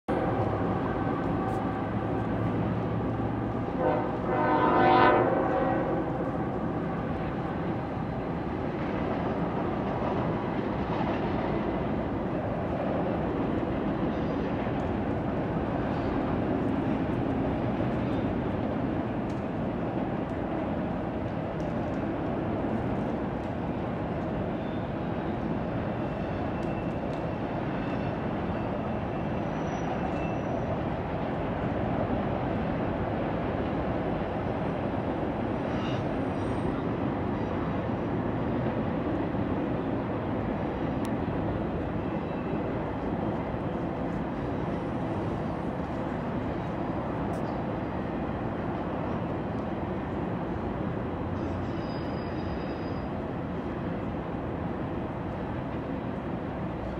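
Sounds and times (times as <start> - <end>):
freight train on rails: 0.1 - 56.9.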